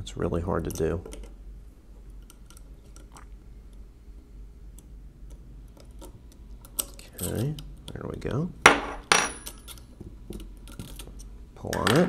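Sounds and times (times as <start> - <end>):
metal tool clicking on metal parts: 9.1 - 11.1.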